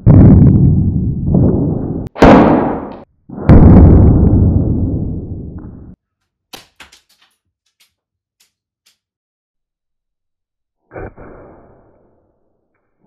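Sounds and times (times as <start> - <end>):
gunshot blast: 2.0 - 5.4.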